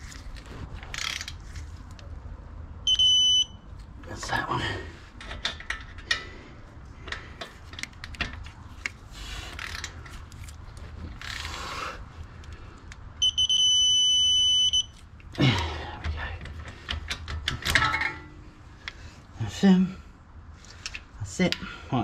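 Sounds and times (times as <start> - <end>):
ratchet clicks: 0.9 - 1.4
high steady beep: 2.8 - 3.6, 13.2 - 14.9.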